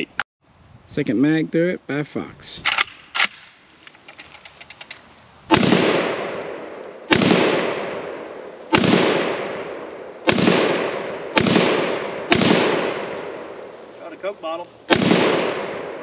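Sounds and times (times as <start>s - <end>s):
rifle shots with echo: 5.5s - 13.8s, 14.9s - 16.0s.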